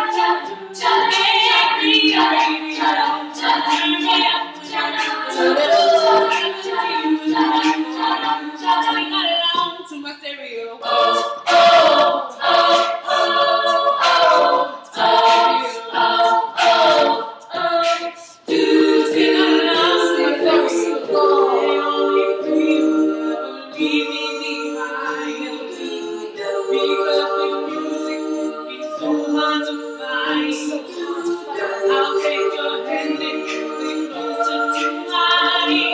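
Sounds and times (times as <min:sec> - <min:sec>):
female group singing in harmony: 0:00.0 - 0:10.0, 0:10.8 - 0:35.9.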